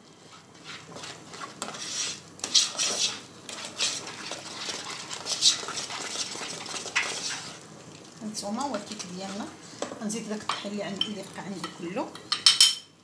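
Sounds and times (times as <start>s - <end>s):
utensil scraping saucepan: 0.0s - 7.6s.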